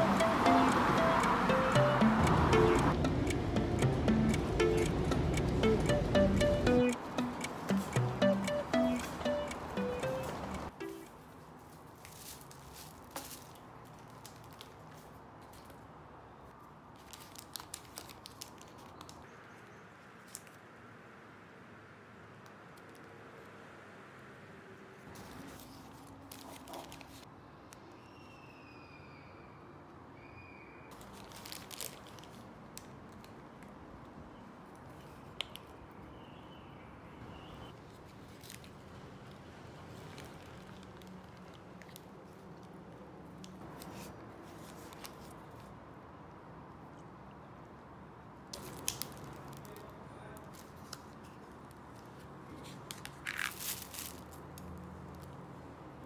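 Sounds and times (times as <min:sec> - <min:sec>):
paper and plastic crinkling: 0:17.0 - 0:19.2, 0:25.2 - 0:27.2, 0:30.9 - 0:33.3, 0:39.9 - 0:42.8, 0:48.6 - 0:55.3.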